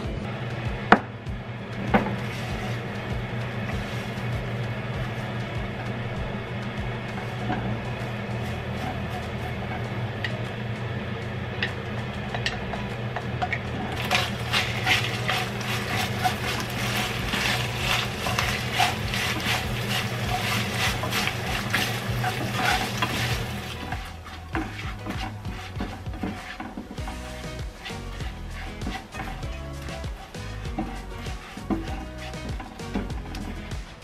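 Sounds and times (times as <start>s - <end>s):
spatula scraping a pan: 2.0s - 6.1s, 7.0s - 10.5s, 11.6s - 34.0s.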